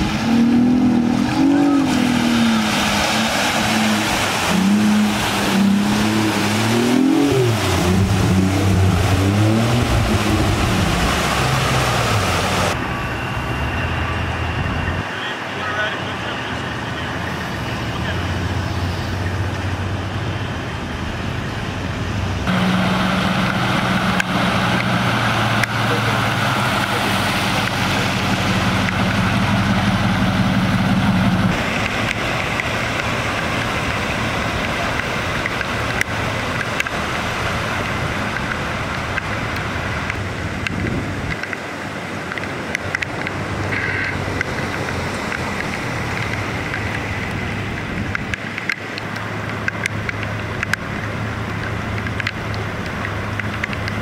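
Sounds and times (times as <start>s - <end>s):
car driving through floodwater: 0.0s - 54.0s
vehicle engines idling: 0.0s - 54.0s.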